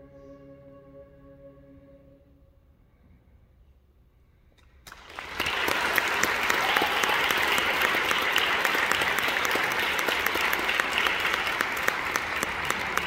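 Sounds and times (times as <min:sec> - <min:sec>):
audience clapping: 0:04.8 - 0:13.0.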